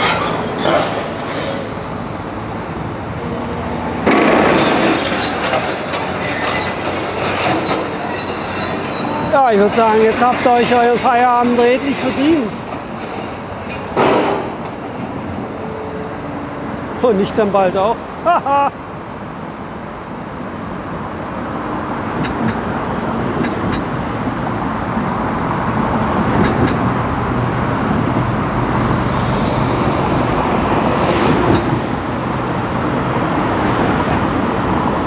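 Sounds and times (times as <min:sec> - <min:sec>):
busy traffic noise: 0:00.0 - 0:35.0.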